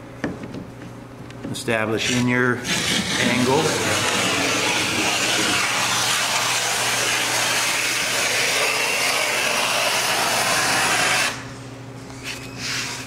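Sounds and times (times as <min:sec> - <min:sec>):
block plane shaving wood: 0:02.0 - 0:11.4.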